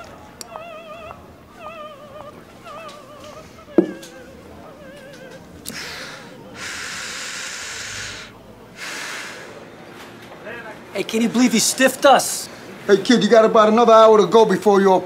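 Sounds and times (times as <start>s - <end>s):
soft operatic music: 0.0s - 5.6s
young man breathing heavily: 5.7s - 9.6s.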